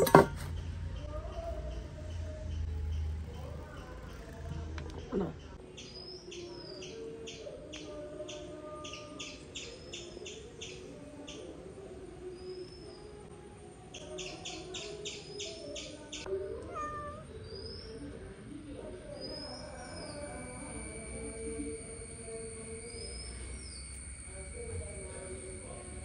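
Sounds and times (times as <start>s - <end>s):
bird chirping: 14.0s - 18.3s, 19.0s - 25.9s
cat meowing: 16.5s - 17.4s.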